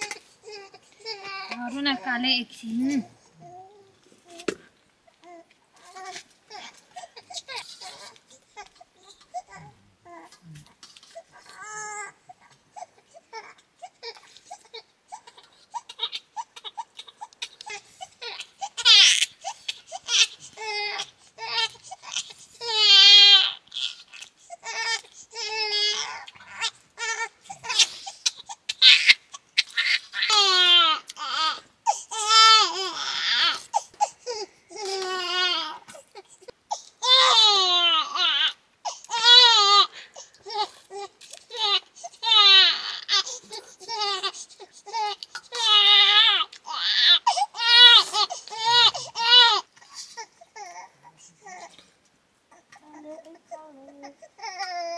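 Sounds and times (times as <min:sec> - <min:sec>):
baby squealing: 0:15.2 - 0:34.1, 0:45.0 - 0:49.6
baby babbling and giggling: 0:52.5 - 0:54.9.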